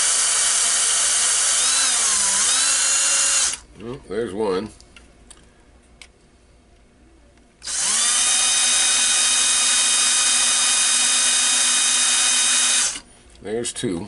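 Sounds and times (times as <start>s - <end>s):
cordless drill whining: 0.0s - 3.6s, 7.6s - 13.0s.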